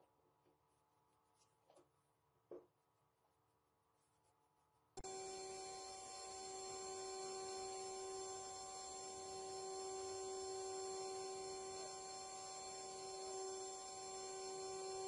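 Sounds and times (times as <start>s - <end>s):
router spindles whining: 5.0s - 15.0s.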